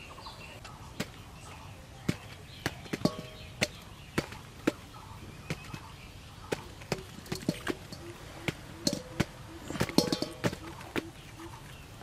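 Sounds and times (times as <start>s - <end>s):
strawberries tapping into steel bowl: 2.1s - 4.9s, 5.5s - 11.1s
steel bowl ringing: 8.8s - 10.6s.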